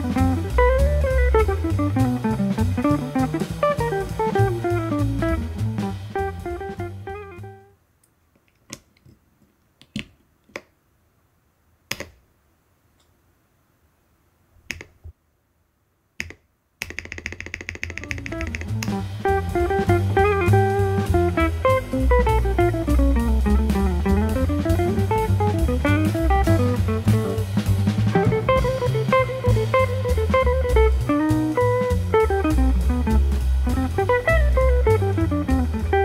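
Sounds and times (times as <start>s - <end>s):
guitar and drum music: 0.0s - 7.7s, 17.8s - 36.0s
rapid keyboard typing: 16.2s - 19.0s.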